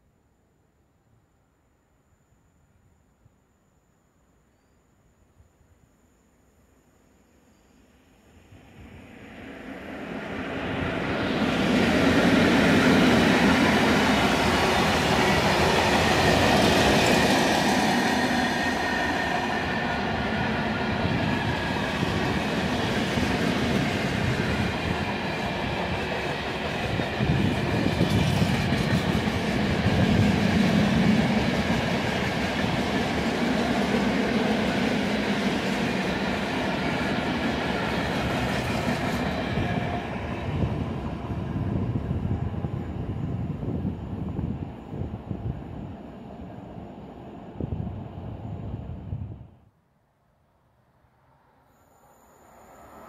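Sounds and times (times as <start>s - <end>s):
electric locomotive passing: 7.8s - 49.6s, 51.1s - 53.0s.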